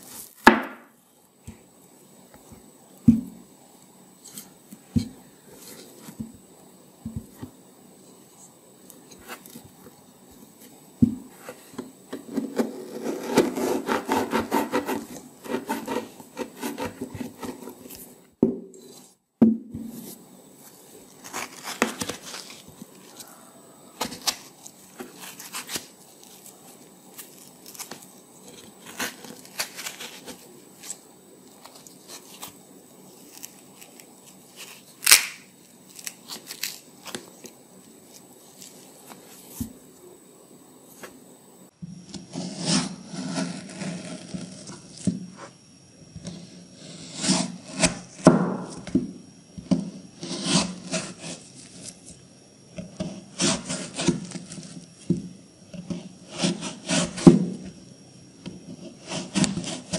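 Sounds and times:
knife cutting and scraping melon: 0:08.8 - 0:09.8, 0:10.4 - 0:19.2, 0:19.8 - 0:39.8, 0:42.1 - 0:45.6, 0:46.2 - 0:48.9, 0:49.6 - 0:52.2, 0:52.8 - 0:54.9, 0:55.7 - 0:57.6, 0:58.6 - 0:59.9.

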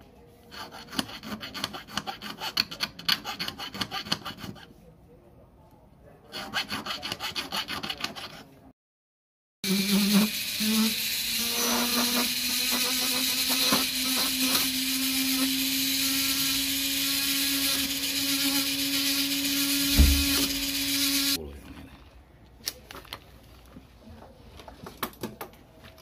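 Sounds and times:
rotary tool grinding metal: 0:09.6 - 0:21.4.

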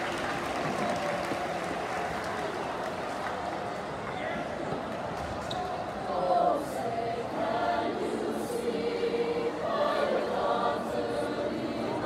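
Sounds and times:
choir singing held chords: 0:06.0 - 0:12.0.

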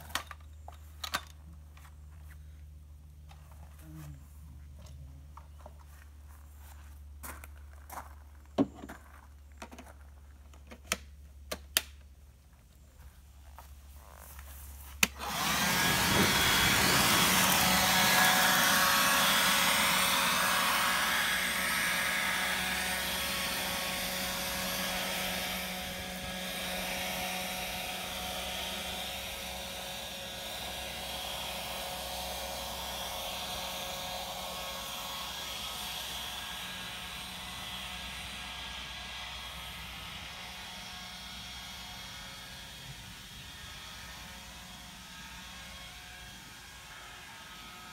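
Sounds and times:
leaf blower running: 0:13.6 - 0:47.9.

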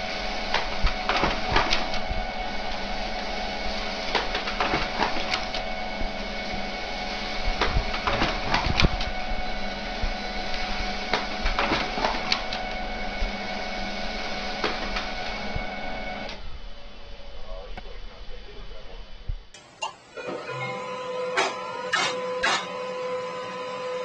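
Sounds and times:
printer motor whine: 0:00.0 - 0:17.7, 0:19.6 - 0:24.0
printer clicks and rattles: 0:00.2 - 0:13.8, 0:14.4 - 0:15.5.

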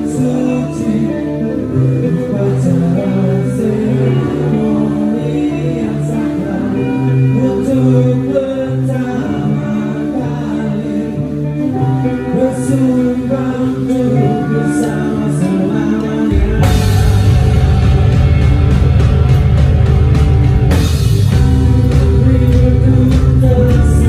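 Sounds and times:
guitar chords: 0:00.0 - 0:24.0
person singing: 0:00.0 - 0:24.0
rock band playing: 0:00.0 - 0:24.0.

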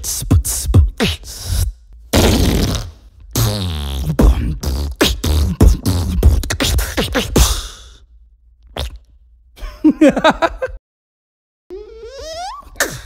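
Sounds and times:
beatboxing pops and clicks: 0:00.0 - 0:07.8, 0:08.6 - 0:09.2
person laughing: 0:09.6 - 0:10.8.

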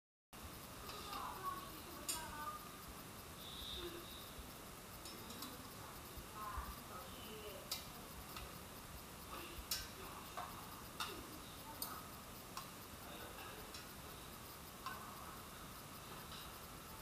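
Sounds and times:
metal tongs clicking on bowl: 0:07.6 - 0:08.5, 0:09.6 - 0:12.0.

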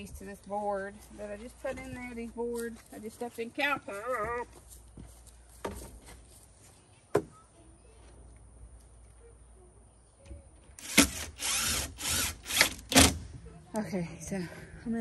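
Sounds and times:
cordless drill driving screws: 0:10.8 - 0:13.2.

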